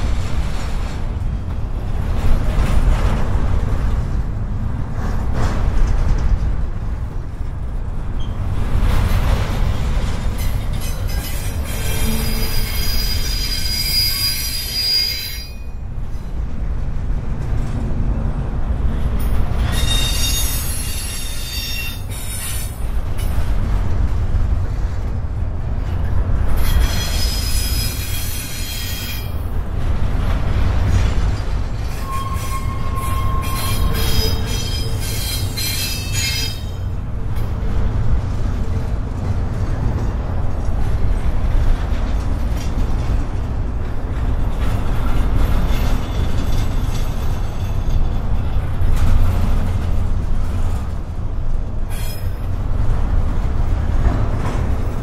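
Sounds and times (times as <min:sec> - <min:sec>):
freight train rumbling: 0:00.0 - 0:55.0
train wheels squealing: 0:08.2 - 0:08.4, 0:10.4 - 0:16.4, 0:19.2 - 0:23.4, 0:26.6 - 0:29.5, 0:31.8 - 0:37.0, 0:44.4 - 0:48.7, 0:51.9 - 0:52.5.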